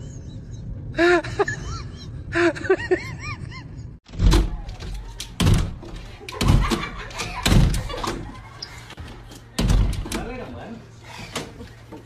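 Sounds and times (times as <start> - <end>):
dog thumping on glass door: 4.1 - 8.3.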